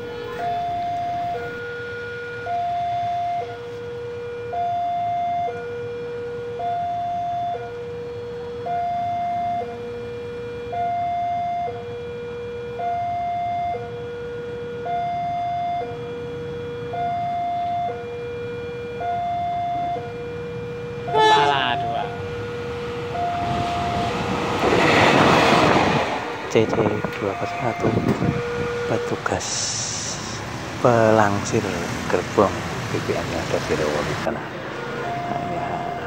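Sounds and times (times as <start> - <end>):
level crossing two-tone alarm: 0.0 - 24.3, 27.0 - 30.4, 34.9 - 36.0.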